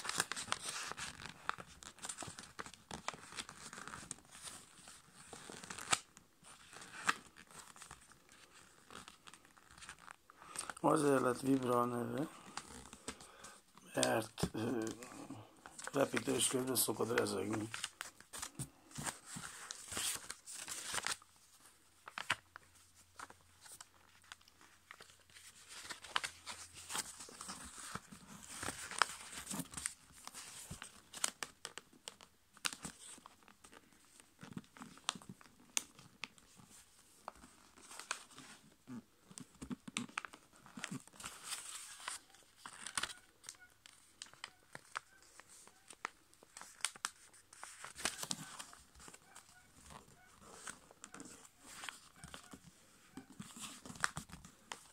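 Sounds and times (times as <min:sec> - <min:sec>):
paper rustling and crinkling: 0:00.0 - 0:54.9
paper folds clicking: 0:05.3 - 0:10.8, 0:15.6 - 0:21.2, 0:22.0 - 0:36.4, 0:39.3 - 0:54.9.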